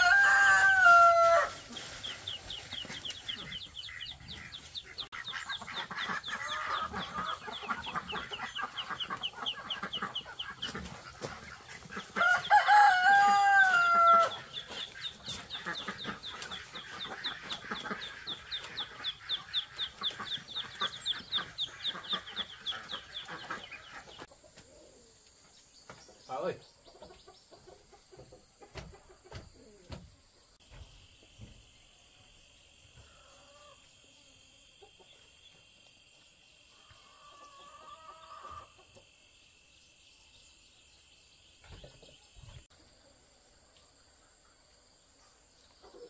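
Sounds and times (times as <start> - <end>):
rooster crowing: 0.0 - 1.6, 12.2 - 14.5.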